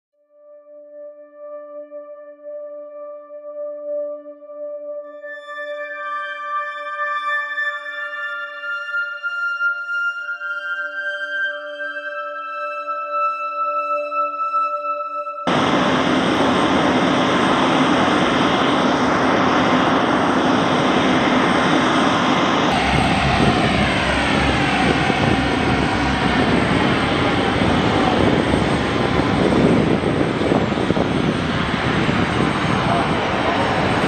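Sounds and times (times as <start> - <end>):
turbine engines roaring: 15.5 - 34.0
whining tones sliding down: 15.5 - 34.0.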